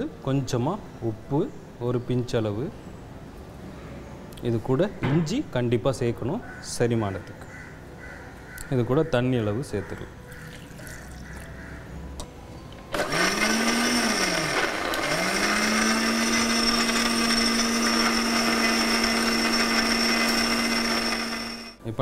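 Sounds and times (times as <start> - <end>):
mixer grinder blending: 12.9 - 21.8.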